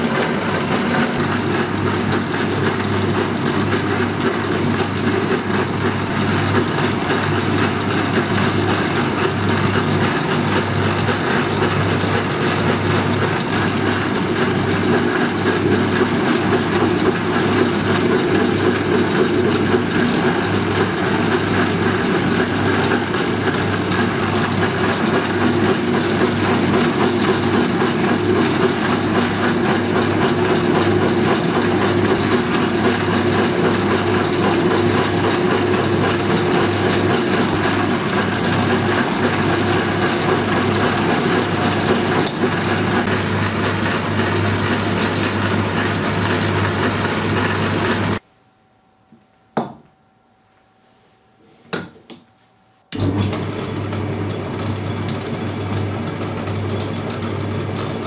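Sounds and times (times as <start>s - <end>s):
metal lathe running: 0.0s - 48.2s, 53.0s - 58.0s
thin high whine: 48.2s - 51.7s.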